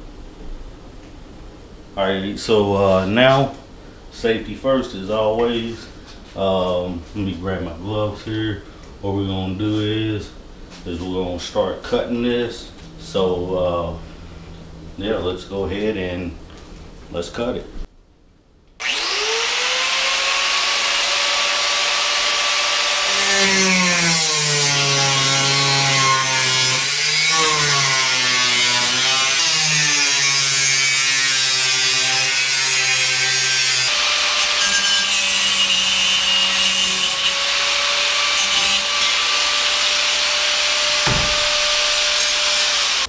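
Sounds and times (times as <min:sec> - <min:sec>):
angle grinder cutting steel: 0:18.8 - 0:43.0.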